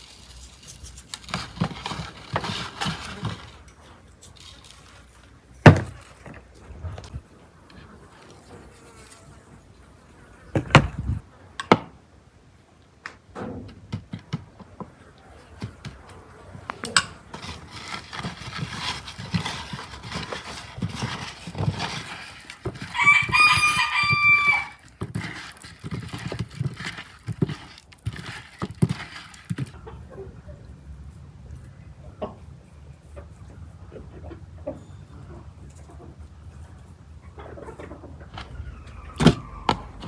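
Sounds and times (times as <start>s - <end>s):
hands rubbing paste into potatoes: 0.0s - 5.2s, 17.3s - 29.8s
rooster crowing: 22.8s - 24.8s, 38.4s - 40.0s.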